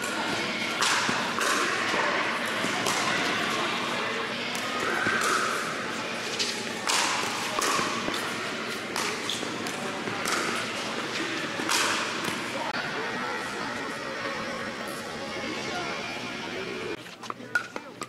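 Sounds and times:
paddles striking pickleball: 0.7s - 3.4s, 6.4s - 12.6s.

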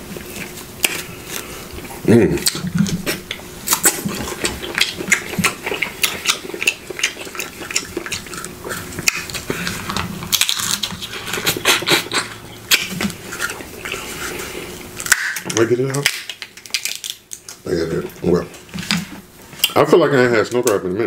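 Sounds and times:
crab shell cracking: 3.7s - 13.6s, 15.0s - 17.6s.

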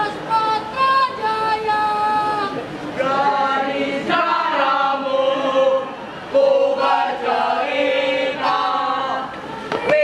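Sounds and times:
group singing a cheer in chorus: 3.0s - 10.0s.

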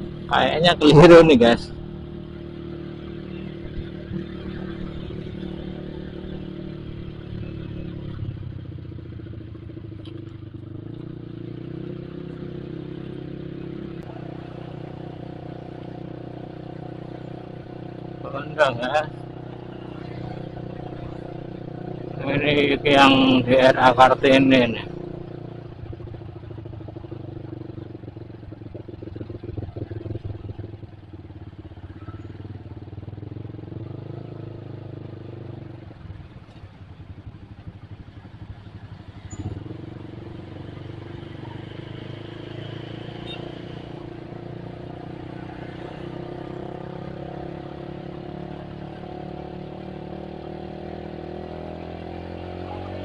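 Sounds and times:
motorcycle engine running: 0.0s - 53.0s
other motorcycles in traffic: 0.0s - 53.0s.

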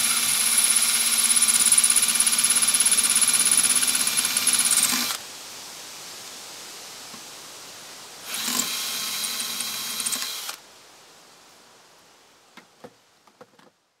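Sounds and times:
power drill whining: 0.0s - 5.2s, 8.3s - 10.6s.

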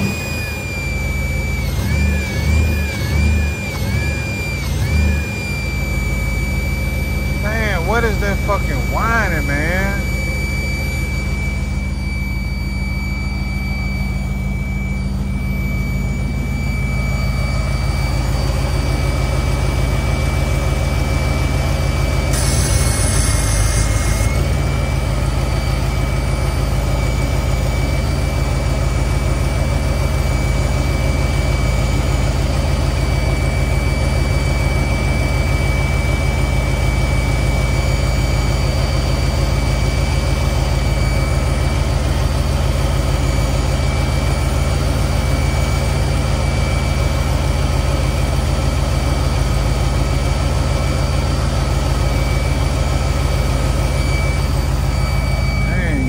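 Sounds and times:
car engine idling: 0.0s - 33.4s, 47.2s - 56.0s
thin high-pitched tone: 7.5s - 16.1s, 55.0s - 56.0s.

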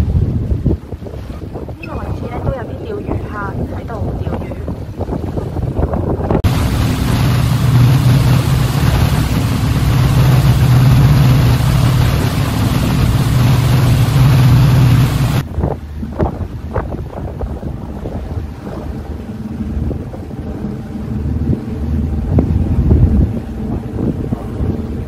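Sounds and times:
loud wind: 0.0s - 25.0s
water noise: 0.0s - 25.0s
ferry engine drone: 6.4s - 25.0s.

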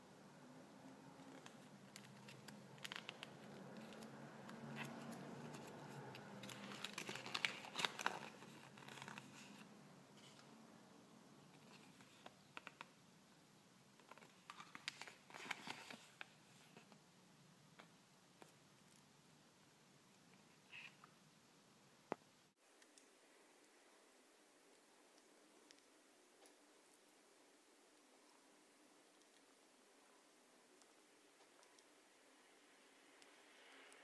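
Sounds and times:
paper crinkling and rustling: 1.2s - 10.5s, 14.0s - 17.0s.

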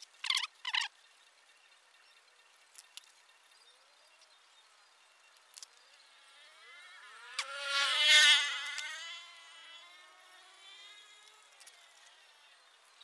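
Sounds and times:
small motorbike engine revving: 0.2s - 13.0s.

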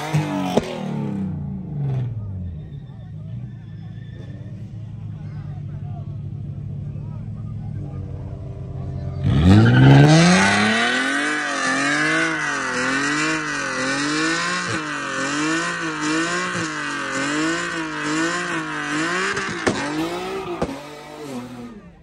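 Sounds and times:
car engine revving: 0.0s - 22.0s
tyres squealing: 2.4s - 5.0s, 9.2s - 20.8s.

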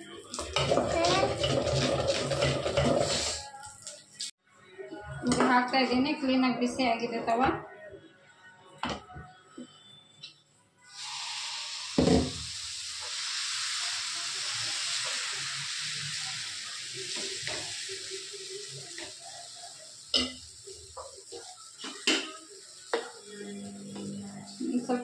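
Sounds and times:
batter sizzling on hot pan: 10.9s - 25.0s.

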